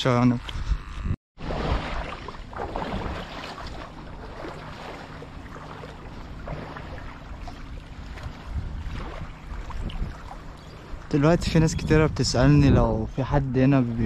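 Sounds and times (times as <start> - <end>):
wind rumbling on microphone: 0.2 - 14.0
small waves lapping: 1.4 - 11.6.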